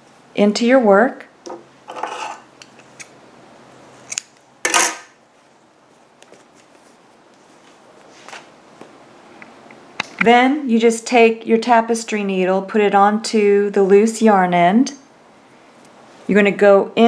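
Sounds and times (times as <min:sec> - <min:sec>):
hands rustling yarn: 0:05.3 - 0:08.5.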